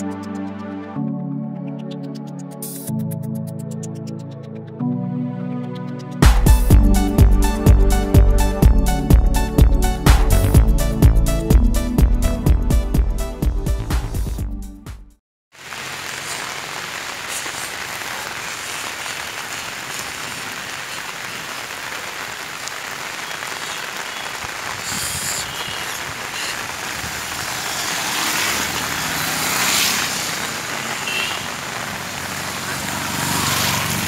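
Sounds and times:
heavy rain on road: 15.5 - 34.0
vehicle engine: 26.6 - 34.0.

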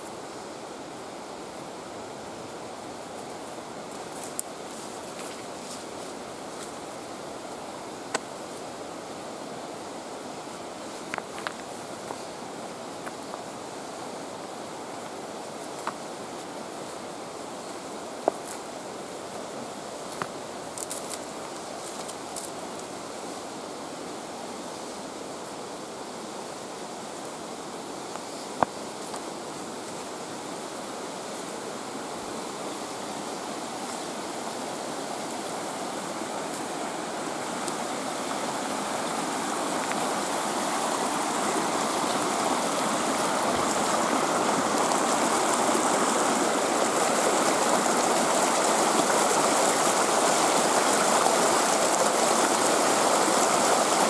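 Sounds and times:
creek rushing over rocks: 0.0 - 54.0.

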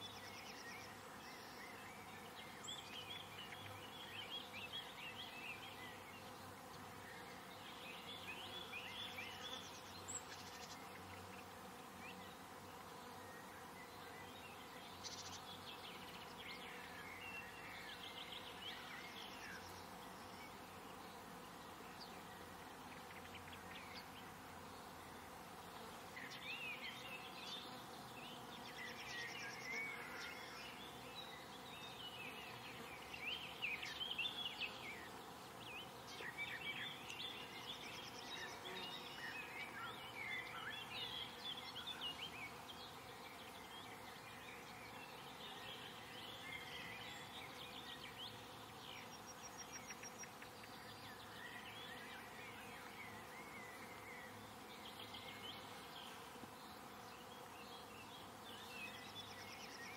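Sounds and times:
insects buzzing: 0.0 - 59.9.

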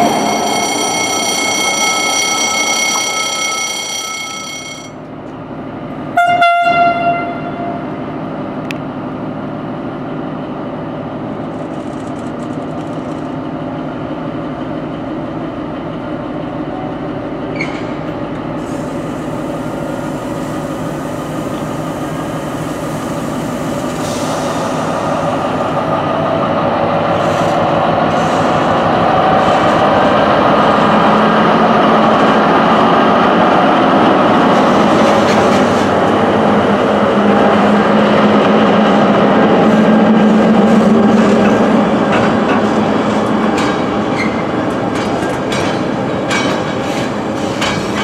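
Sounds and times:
freight train running: 0.0 - 48.0
locomotive horn blast: 6.1 - 7.9
train wheels squealing: 17.5 - 18.0, 44.1 - 44.5.

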